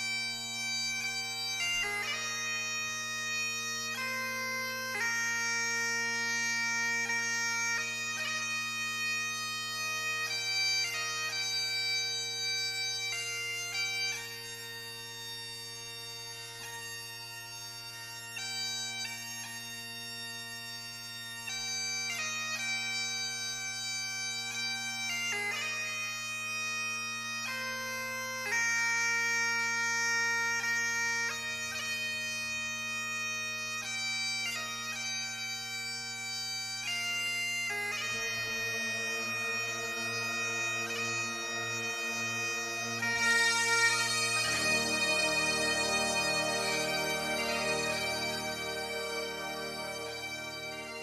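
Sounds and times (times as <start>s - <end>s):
low drone: 38.0s - 51.0s
slow melody of held notes: 38.0s - 51.0s.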